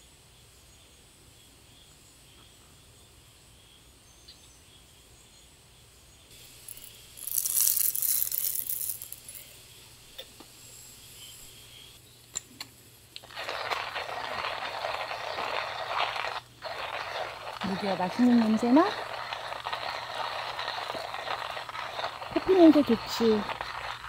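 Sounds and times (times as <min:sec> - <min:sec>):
coffee grinder grinding beans: 0:06.4 - 0:09.6, 0:13.2 - 0:24.0.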